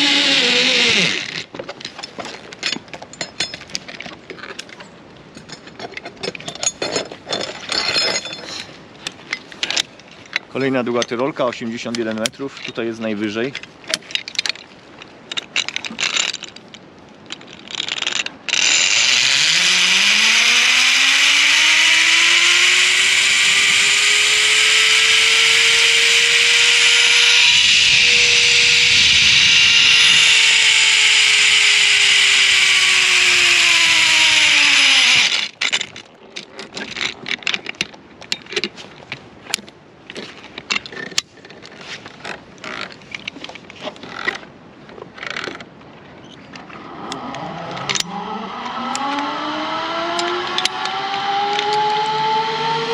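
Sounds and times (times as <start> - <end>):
zip-line pulley whirring whine: 0.0 - 1.5, 18.2 - 35.8, 46.7 - 52.9
metallic clicks of carabiners: 0.1 - 11.2, 11.8 - 20.6, 47.1 - 48.2, 50.1 - 52.7.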